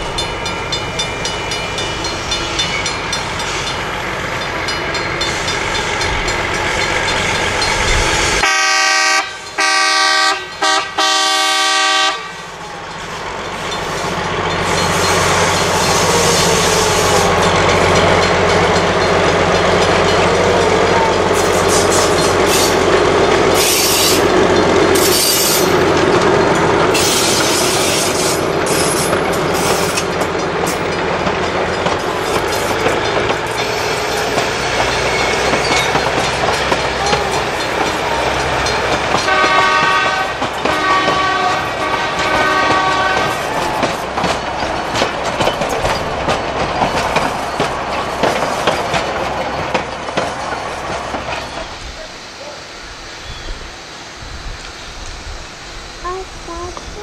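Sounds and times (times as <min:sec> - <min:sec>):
train rumbling past: 0:00.0 - 0:57.0
train horn blasts: 0:08.4 - 0:12.5, 0:39.1 - 0:43.6.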